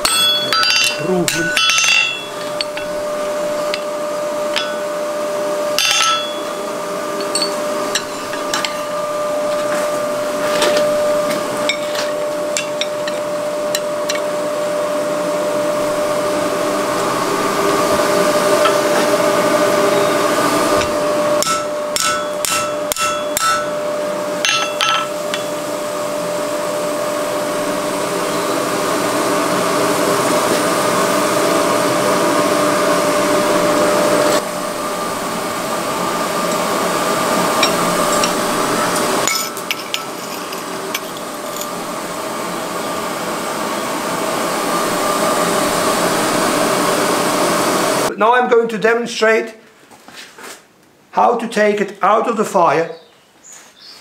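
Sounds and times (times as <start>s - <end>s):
hammer striking iron on anvil: 0.0s - 3.0s, 4.5s - 5.0s, 5.8s - 9.0s, 11.6s - 14.3s, 20.8s - 23.8s, 24.4s - 25.6s, 37.6s - 41.7s
forge blower drone: 0.0s - 48.1s.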